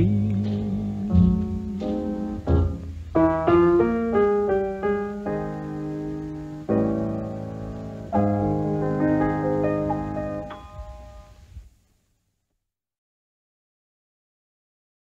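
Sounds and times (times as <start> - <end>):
piano notes and chords: 0.0 - 11.5.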